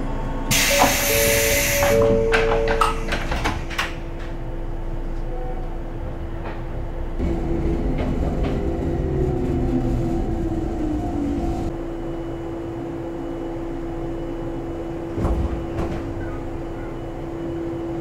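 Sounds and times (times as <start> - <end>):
standing train humming: 0.0 - 18.0
train sliding doors banging shut: 0.5 - 9.7, 15.0 - 16.9.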